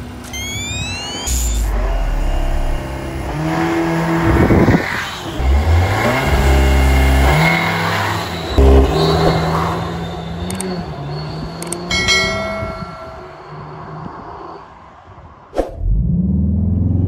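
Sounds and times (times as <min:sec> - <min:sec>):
car engine revving: 0:01.2 - 0:13.6.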